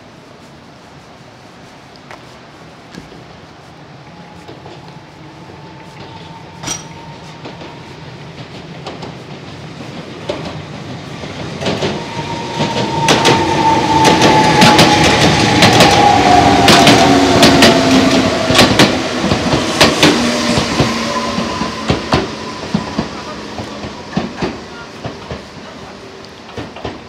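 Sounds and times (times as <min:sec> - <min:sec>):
train whining tone: 0:03.2 - 0:27.0
train wheels clacking over rail joints: 0:06.0 - 0:27.0.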